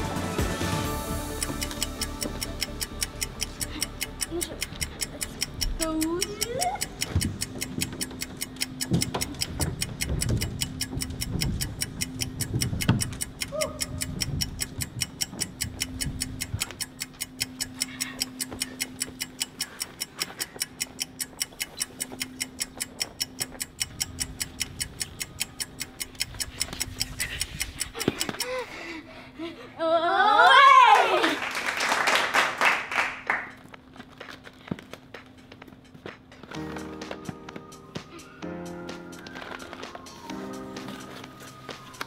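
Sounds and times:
fast clock ticking: 0.1s - 29.0s, 35.0s - 38.5s, 39.1s - 42.0s
low thumps and rumble: 8.8s - 13.3s.

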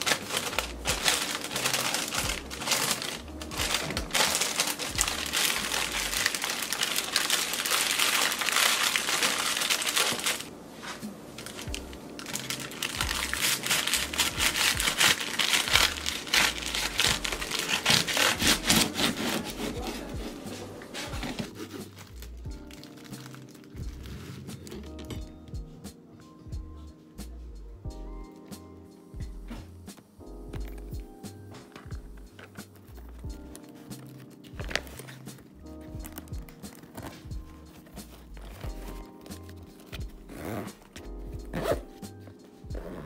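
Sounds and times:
paper wrapping crinkling: 0.0s - 25.2s, 30.0s - 43.0s
knife sawing through sandwich: 17.1s - 21.9s.

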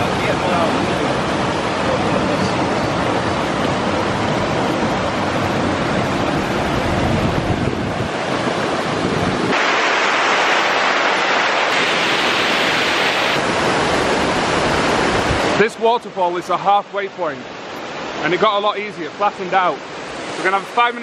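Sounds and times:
wind rumble on microphone: 0.0s - 15.6s
rushing mountain stream: 0.0s - 21.0s
water cascading over rock: 9.4s - 16.8s.

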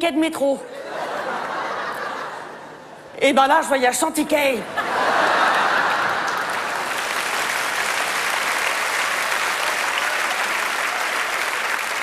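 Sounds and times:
audience clapping: 5.2s - 12.0s.

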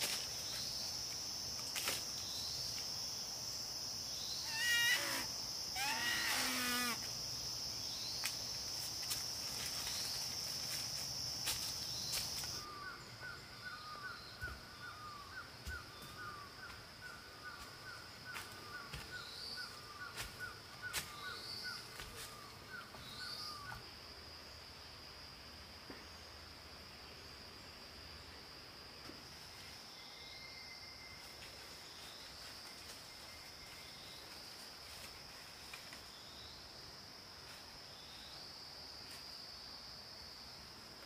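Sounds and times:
high insect buzz: 0.0s - 23.9s
faint high insect trill: 0.0s - 41.0s.

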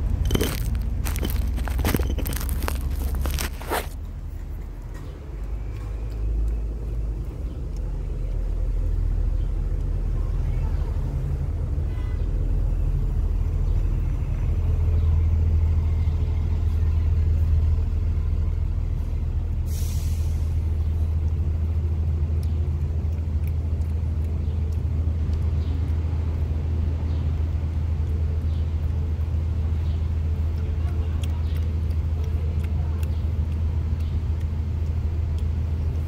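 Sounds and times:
engine rumbling hum: 0.0s - 36.0s
short hiss: 19.7s - 20.6s.

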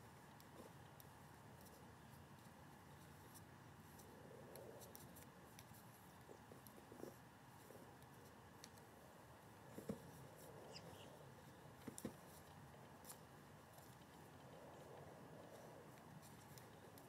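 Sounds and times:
faint ticks and clicks: 0.0s - 6.8s, 11.8s - 17.0s
faint background hiss: 0.0s - 17.0s.

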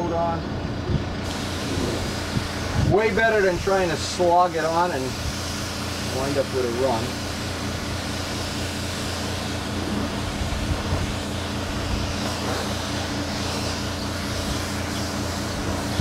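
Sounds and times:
air supply hum and hiss: 0.0s - 16.0s
spray gun spraying paint: 1.2s - 16.0s.

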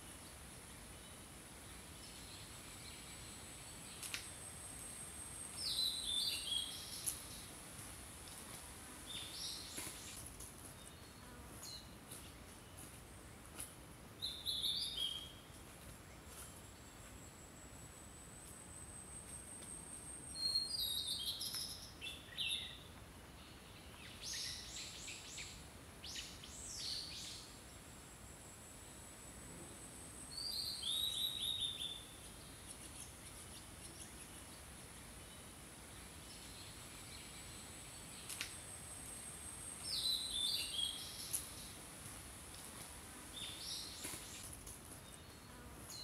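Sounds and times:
songbirds singing: 5.6s - 7.5s, 14.2s - 15.5s, 20.2s - 27.8s, 30.3s - 38.6s, 39.8s - 41.8s, 43.3s - 46.0s.

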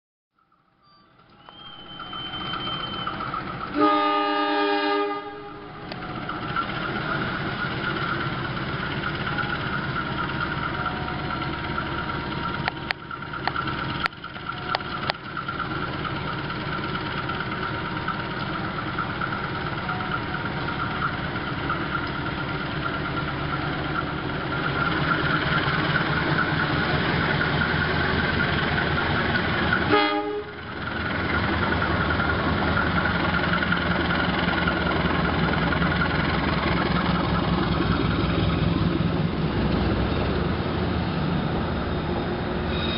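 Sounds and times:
locomotive engine running: 1.1s - 42.9s
locomotive horn: 1.6s - 6.2s, 29.8s - 30.7s.

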